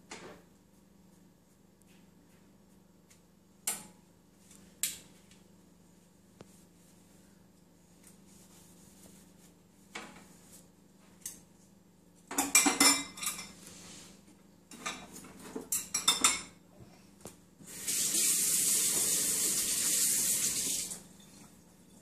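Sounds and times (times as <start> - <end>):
dishes clinking and clattering: 12.3 - 13.6, 14.7 - 16.6
tap water running: 17.6 - 21.1.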